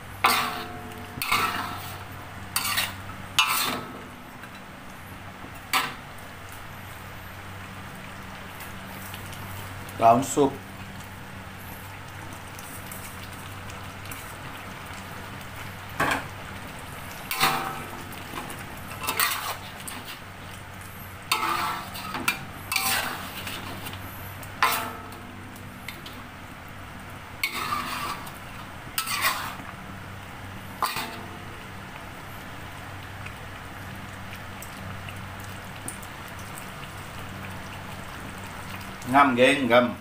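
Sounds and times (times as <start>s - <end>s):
steady low hum: 0.0s - 39.0s
metal spatula clanking in wok: 0.2s - 2.0s, 2.6s - 4.0s, 17.3s - 18.0s, 21.3s - 23.2s, 24.6s - 25.2s, 27.4s - 28.3s, 30.8s - 31.3s.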